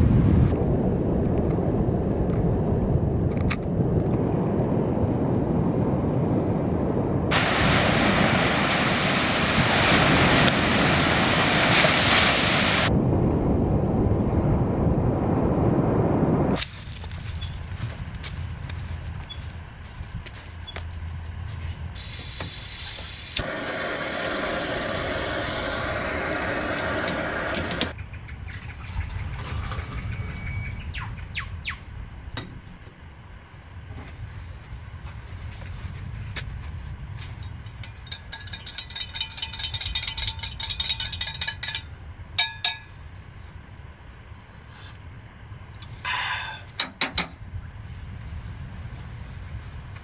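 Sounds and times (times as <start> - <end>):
rushing hiss: 22.0 - 28.0
spoon stirring in metal mug: 38.1 - 41.8.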